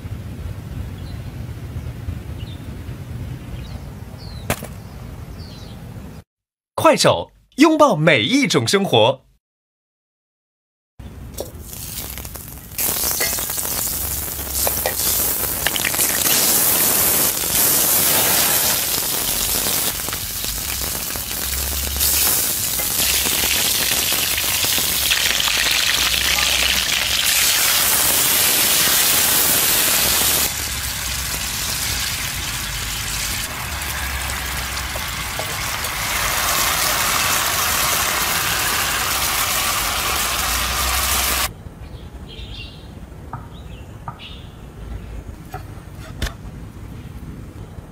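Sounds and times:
food sizzling in butter: 11.4 - 41.5.

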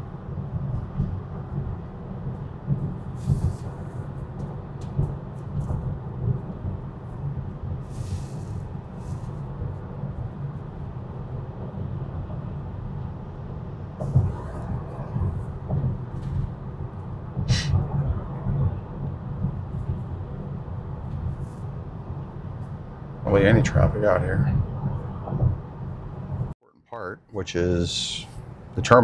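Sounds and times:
tyre and road rumble in car: 0.0 - 26.6
faint rustles: 7.8 - 9.5.

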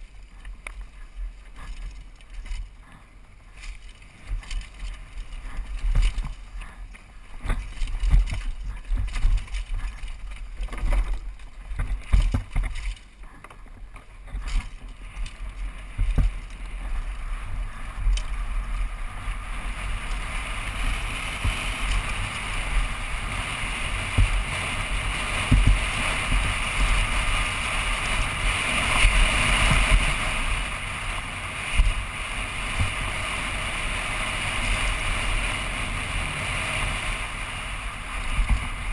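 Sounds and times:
bike rattling and thudding: 0.0 - 38.9
tyres on loose gravel: 0.0 - 38.9.

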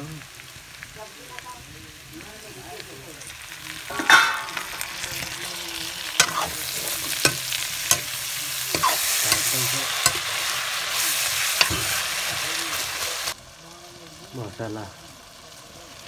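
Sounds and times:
food sizzling in wok: 0.0 - 16.0
ladle scraping wok: 3.2 - 13.4.

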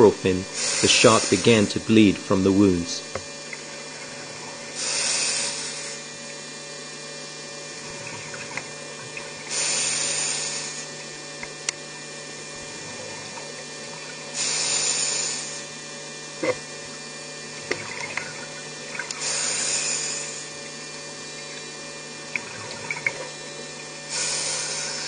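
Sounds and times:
rushing bubbles underwater: 7.8 - 9.5, 17.5 - 19.2, 21.5 - 24.1.

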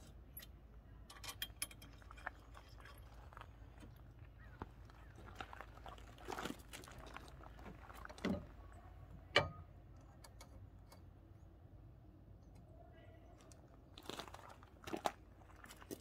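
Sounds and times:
faint low hum: 0.0 - 16.0
metal bracket knocks: 9.3 - 9.6.

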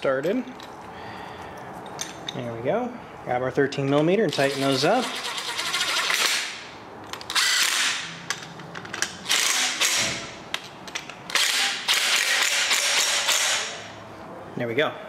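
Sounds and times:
impact driver running bolts: 4.3 - 6.6, 7.2 - 8.1, 9.0 - 10.3, 11.3 - 13.8.

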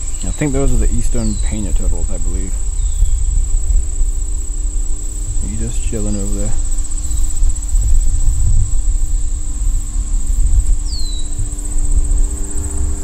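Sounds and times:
insects trilling: 0.0 - 13.0
low rumble on microphone: 0.0 - 13.0
whistled bird note: 10.8 - 11.5.

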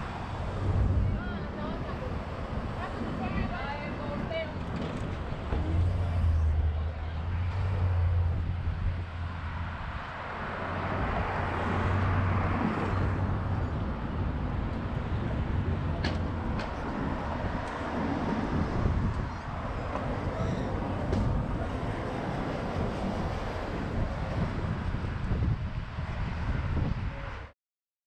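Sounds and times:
low engine rumble: 0.0 - 10.1
car passing: 0.0 - 26.8.

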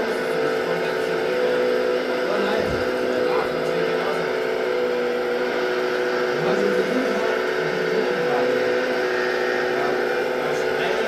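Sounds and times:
hydraulic pump whining: 0.0 - 11.0.

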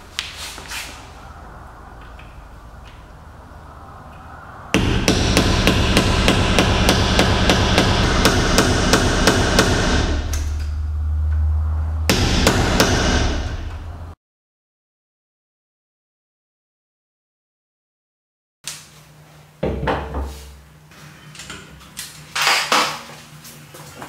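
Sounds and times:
hammer striking steel punch: 4.8 - 10.6, 12.1 - 13.9.

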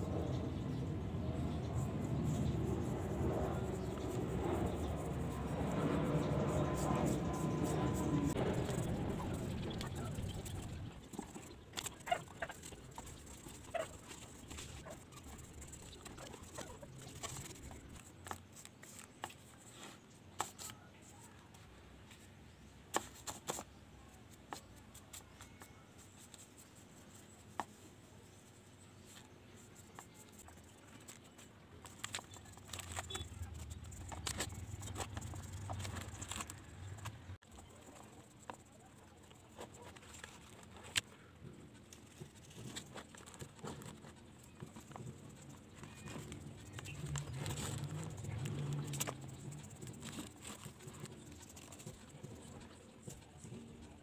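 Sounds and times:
paintbrush dabbing on cement: 1.2 - 21.4, 41.7 - 54.0.

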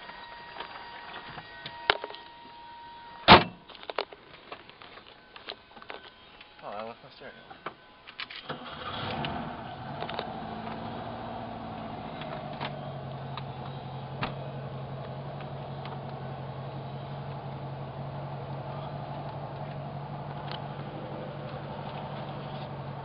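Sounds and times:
vehicle engine starting and idling: 8.2 - 23.0.

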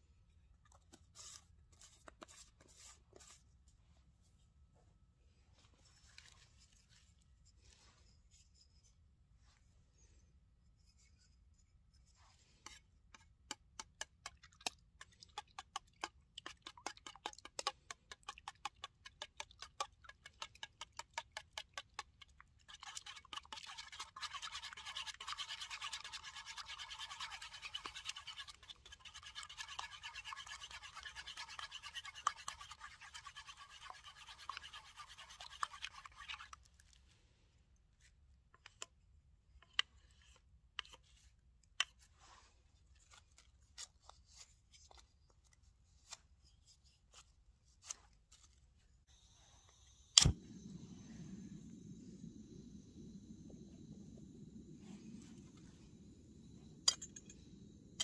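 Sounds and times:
spork beating eggs in metal cup: 13.8 - 36.5.

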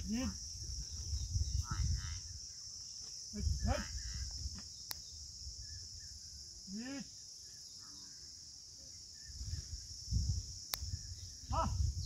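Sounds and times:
man calling out to bullocks: 0.0 - 0.4, 3.3 - 4.2, 6.7 - 7.2, 11.5 - 11.9
crickets chirring: 0.0 - 12.0.

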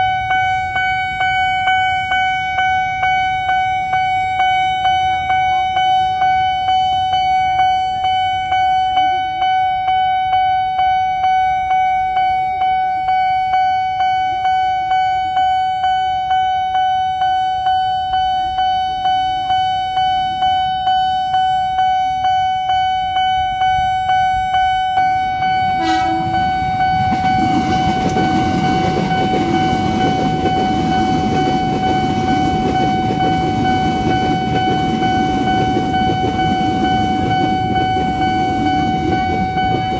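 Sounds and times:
level crossing alarm pulsing: 0.0 - 39.9
electric train rushing past: 22.7 - 39.9.

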